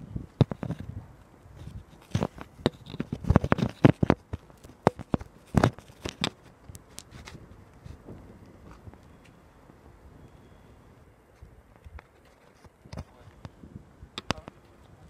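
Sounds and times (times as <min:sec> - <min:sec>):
handling noise: 0:00.0 - 0:10.0.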